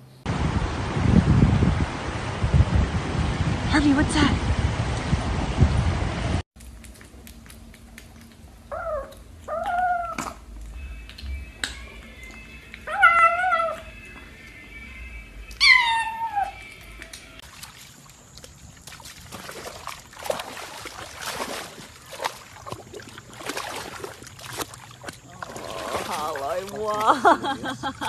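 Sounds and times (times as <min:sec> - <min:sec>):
cat meowing: 0:12.8 - 0:13.8, 0:15.6 - 0:16.6
dog splashing in muddy water: 0:17.4 - 0:28.0.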